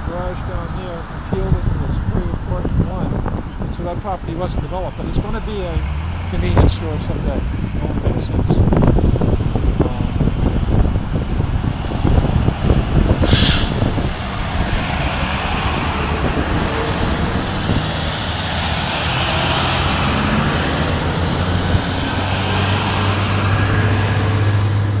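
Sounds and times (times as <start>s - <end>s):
diesel trucks passing: 0.0s - 25.0s
tyre noise on road: 0.0s - 25.0s
air hiss: 13.2s - 14.0s.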